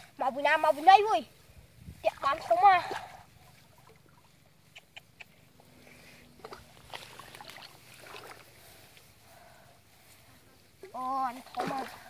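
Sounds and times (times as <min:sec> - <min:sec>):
small splashes in muddy water: 0:02.0 - 0:04.6, 0:06.4 - 0:09.2, 0:10.8 - 0:12.0.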